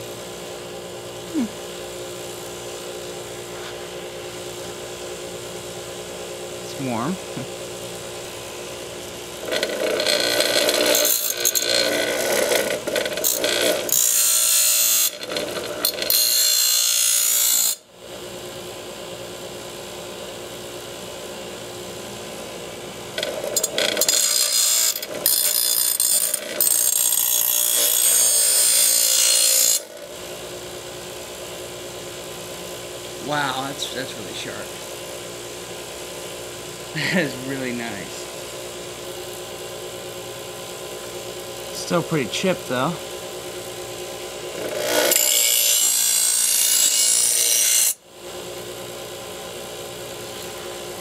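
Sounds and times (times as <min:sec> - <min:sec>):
bench grinder motor humming: 0:09.3 - 0:17.8, 0:23.1 - 0:30.2, 0:41.6 - 0:48.0
harsh grinding of steel blade: 0:09.4 - 0:17.8, 0:23.2 - 0:30.0, 0:44.6 - 0:48.0.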